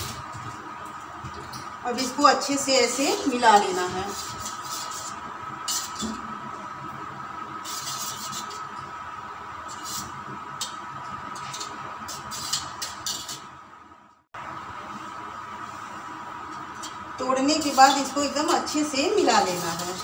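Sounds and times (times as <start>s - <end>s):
utensil scraping and clinking metal bowl: 10.6s - 13.5s.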